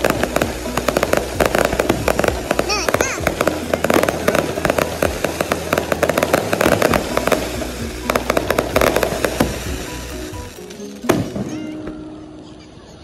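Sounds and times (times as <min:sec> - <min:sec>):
firework bangs: 0:00.0 - 0:12.2
fireworks crackling and popping: 0:00.0 - 0:13.0.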